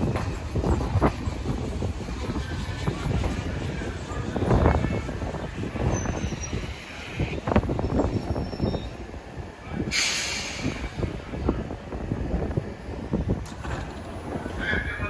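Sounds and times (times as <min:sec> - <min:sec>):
subway train wheels clanking: 0:00.0 - 0:15.0
train wheels squealing: 0:05.4 - 0:09.1
hissing air burst: 0:09.9 - 0:11.1.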